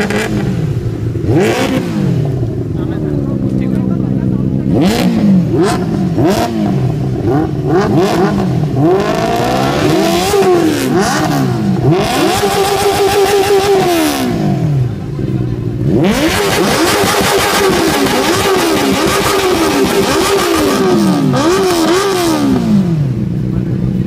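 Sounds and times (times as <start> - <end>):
motorcycle engine revving: 0.0 - 24.0.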